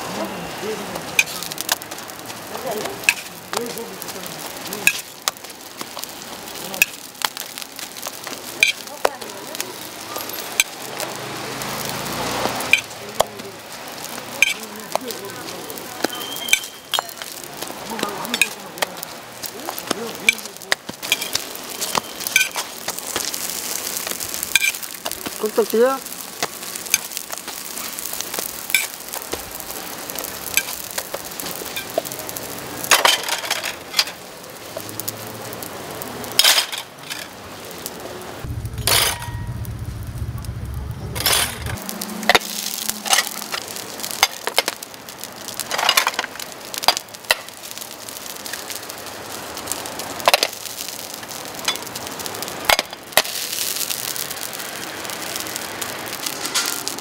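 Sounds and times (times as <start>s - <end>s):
food sizzling on griddle: 0.0s - 57.0s
metallic clinks on hot plate: 12.7s - 12.9s, 16.0s - 17.3s, 20.3s - 22.7s, 24.5s - 24.8s, 28.7s - 29.0s, 38.7s - 39.7s
low hum: 38.5s - 43.1s.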